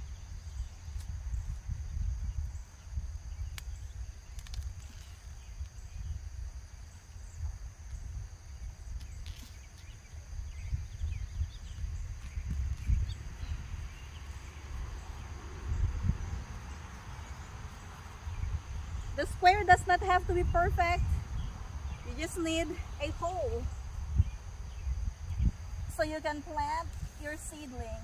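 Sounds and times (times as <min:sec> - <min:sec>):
insect drone: 0:00.0 - 0:28.0.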